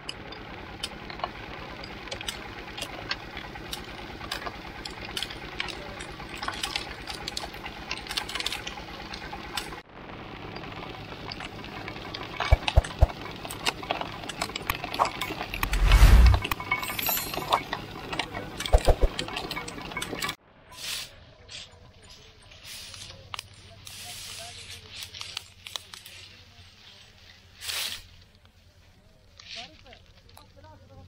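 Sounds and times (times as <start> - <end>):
sugarcane crusher running: 0.0 - 20.4
cane stalks cracking: 24.9 - 26.2.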